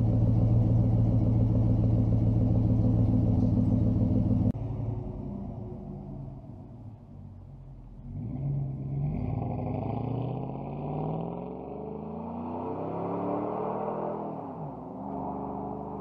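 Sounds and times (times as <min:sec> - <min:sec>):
truck engine accelerating hard: 0:08.0 - 0:16.0.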